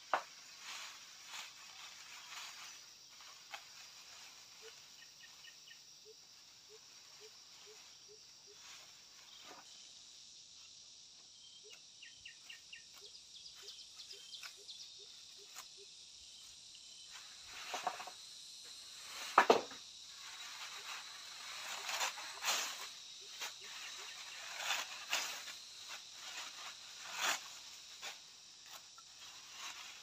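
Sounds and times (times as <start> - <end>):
insect chorus: 0.0 - 30.0.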